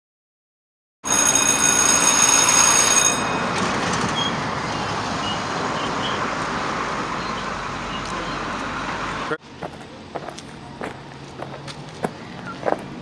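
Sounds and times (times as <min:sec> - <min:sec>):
passing vehicles rushing: 0:03.1 - 0:13.0.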